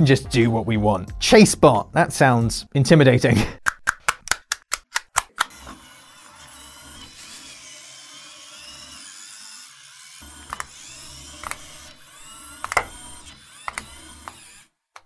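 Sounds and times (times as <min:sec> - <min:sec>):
toy robot motors whirring: 0:05.1 - 0:15.0.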